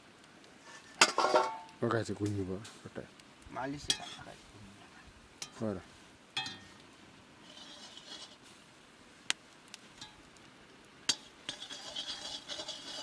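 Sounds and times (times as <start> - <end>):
metal spoon clinking in pot: 6.4 - 6.7.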